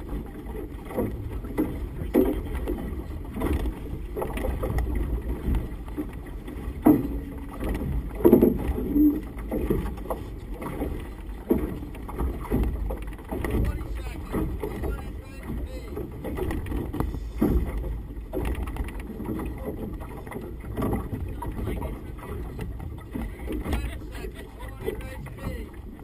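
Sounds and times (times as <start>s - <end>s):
wind buffeting boat: 0.0s - 26.0s
low thumps: 11.4s - 19.5s.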